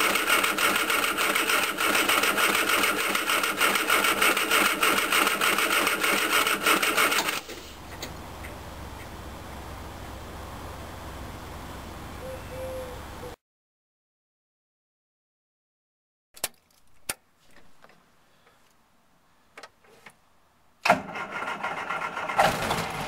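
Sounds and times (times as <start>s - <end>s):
starter motor cranking engine: 0.0s - 7.6s, 20.8s - 23.0s.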